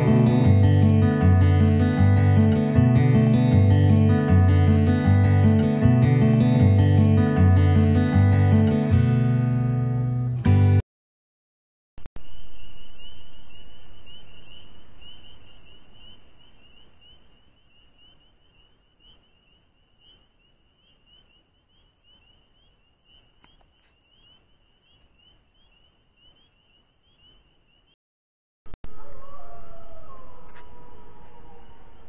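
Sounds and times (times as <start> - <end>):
frogs peeping chorus: 12.2 - 28.0.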